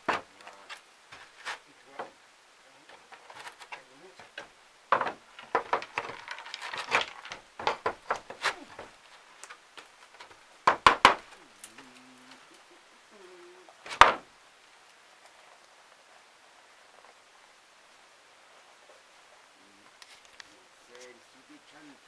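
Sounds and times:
wooden knocks and clatters: 0:00.0 - 0:02.2, 0:02.8 - 0:11.4, 0:13.9 - 0:14.3.

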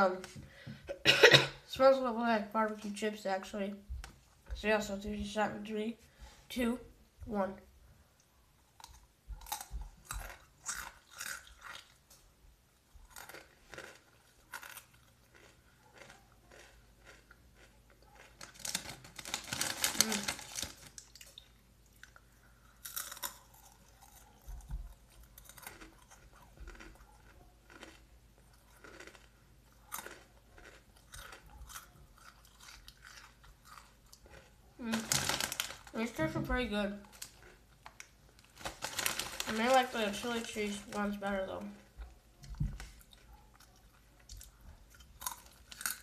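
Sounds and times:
corn chips crunching: 0:08.8 - 0:12.1, 0:13.0 - 0:36.2, 0:37.0 - 0:41.4, 0:42.8 - 0:46.0.

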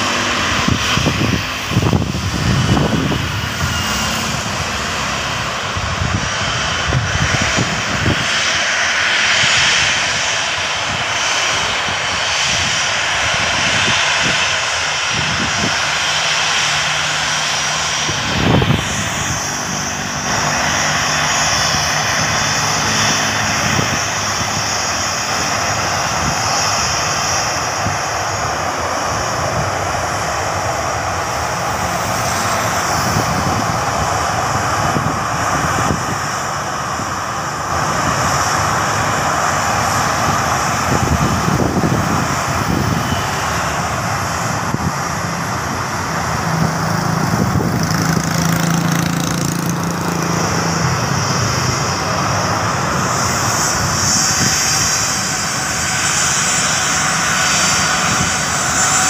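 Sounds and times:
jet engines running: 0:00.0 - 0:59.0
motorcycle passing: 0:46.8 - 0:51.1.

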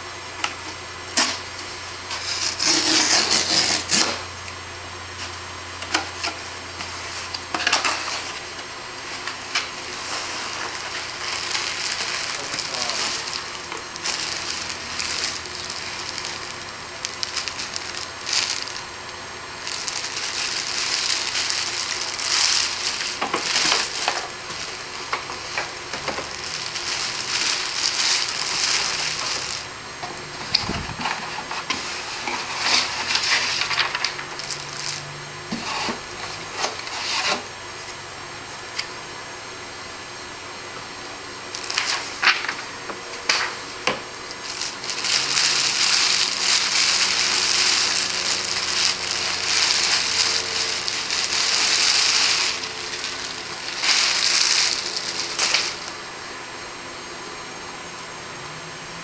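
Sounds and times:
plastic bag crinkling: 0:05.9 - 0:29.8, 0:30.5 - 0:35.2, 0:41.4 - 0:56.1.

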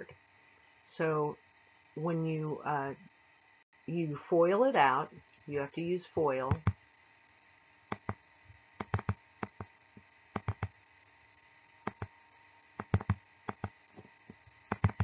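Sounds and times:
faint steady hum: 0:00.0 - 0:15.0
input device clicks: 0:06.5 - 0:06.8, 0:07.9 - 0:08.2, 0:08.8 - 0:09.7, 0:10.4 - 0:10.7, 0:11.9 - 0:12.1, 0:12.8 - 0:13.8, 0:14.7 - 0:15.0.

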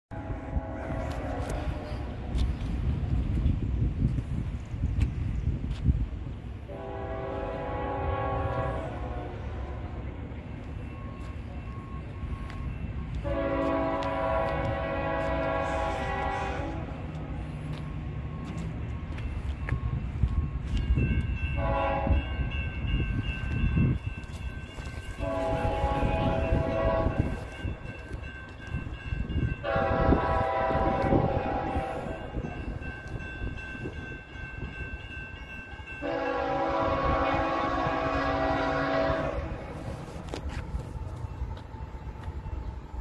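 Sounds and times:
low rumble of train: 0:00.0 - 0:43.0
train air horn blasts: 0:00.1 - 0:02.4, 0:06.6 - 0:10.1, 0:13.2 - 0:17.1, 0:21.6 - 0:22.4, 0:25.1 - 0:27.5, 0:29.6 - 0:32.5, 0:36.0 - 0:40.2.

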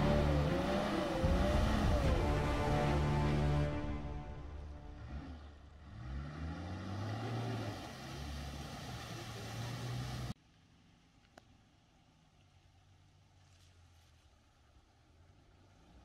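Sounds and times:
vehicle engine revving under load: 0:00.0 - 0:10.4.

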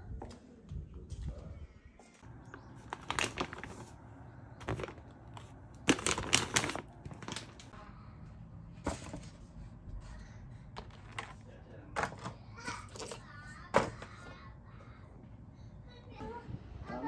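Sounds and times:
plastic packaging crinkling: 0:02.3 - 0:07.8.

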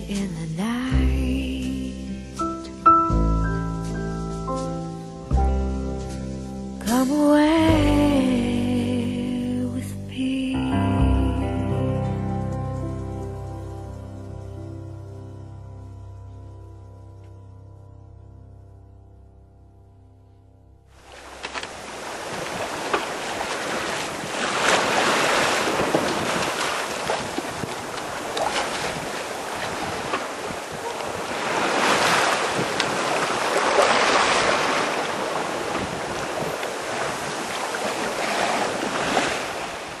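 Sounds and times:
water splashing along boat hull: 0:21.0 - 0:40.0
wind buffeting microphone: 0:21.7 - 0:40.0.

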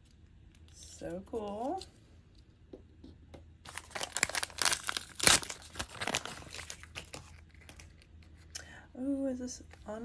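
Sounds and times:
plastic bag crinkling: 0:03.6 - 0:08.5.

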